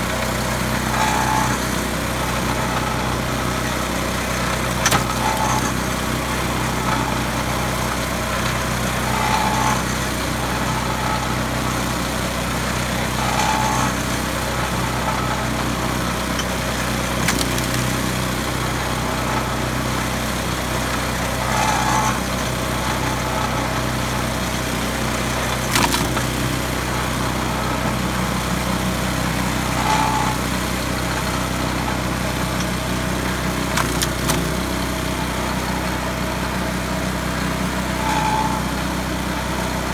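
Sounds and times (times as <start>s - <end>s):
small engine running: 0.0s - 39.9s
sharp wood cracks: 17.2s - 18.1s, 25.7s - 26.4s, 33.7s - 34.6s.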